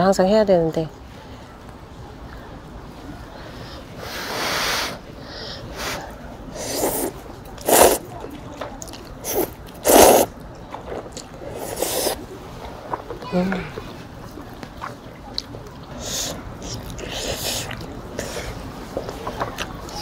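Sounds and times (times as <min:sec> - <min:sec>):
noodles being slurped: 0:05.7 - 0:08.1, 0:08.8 - 0:13.2, 0:14.8 - 0:20.0.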